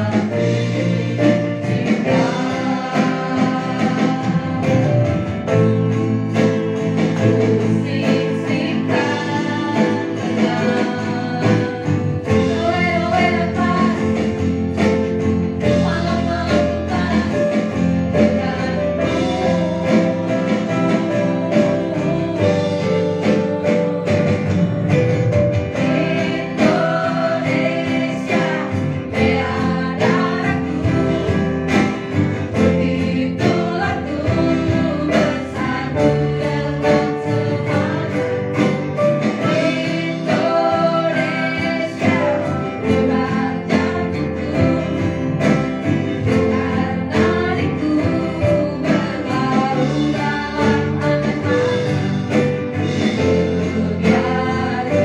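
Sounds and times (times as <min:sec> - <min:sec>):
woman singing into a microphone: 0:00.0 - 0:05.7, 0:07.2 - 0:14.9, 0:15.5 - 0:55.0
backing voices singing: 0:00.0 - 0:55.0
drums with a steady beat: 0:00.0 - 0:55.0
electric and acoustic guitars: 0:00.0 - 0:55.0
keyboard: 0:00.0 - 0:55.0.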